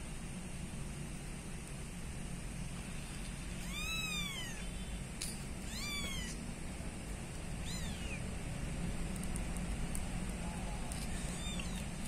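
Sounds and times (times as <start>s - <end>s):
kitten mewing: 3.6s - 4.8s, 5.6s - 6.4s, 7.6s - 8.2s, 10.7s - 12.0s.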